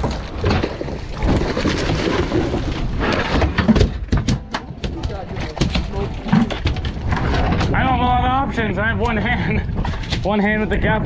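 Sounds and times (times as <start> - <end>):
wind buffeting microphone: 4.7 - 11.0.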